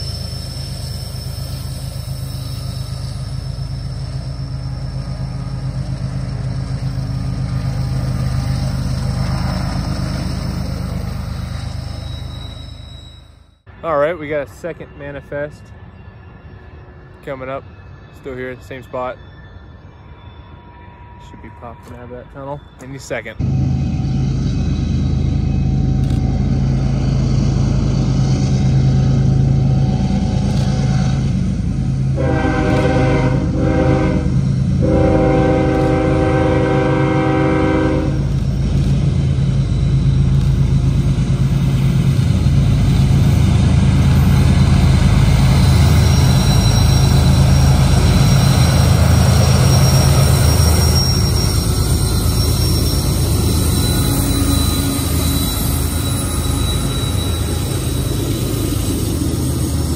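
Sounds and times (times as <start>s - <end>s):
thin high whine: 0.0s - 42.1s, 44.0s - 59.9s
diesel locomotive engine rumble: 0.0s - 59.9s
multi-tone air horn blasts: 32.2s - 38.3s.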